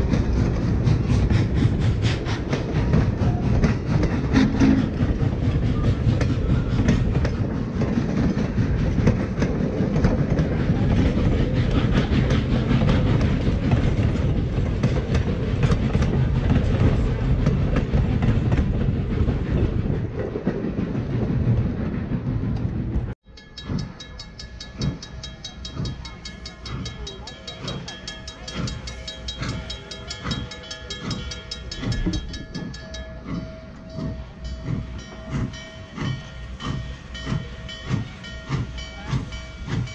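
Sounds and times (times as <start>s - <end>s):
train coaches rumbling past: 0.0s - 39.9s
wheels clicking over rail joints: 0.0s - 39.9s
crossing bell ringing: 23.2s - 39.9s.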